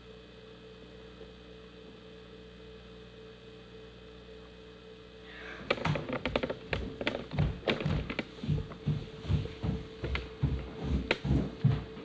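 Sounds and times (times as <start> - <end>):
electrical hum: 0.0 - 12.0
child's footsteps on stairs: 5.6 - 12.0.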